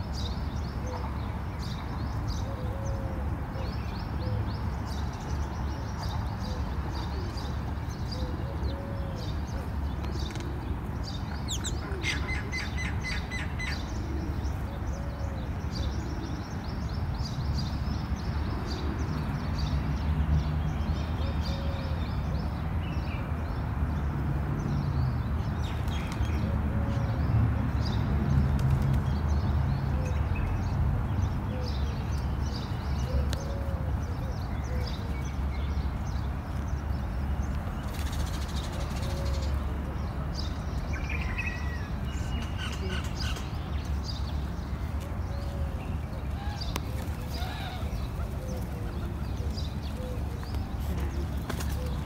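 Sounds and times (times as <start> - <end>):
pigeons cooing: 8.1 - 10.9, 11.5 - 16.5, 33.0 - 35.1, 45.3 - 52.0.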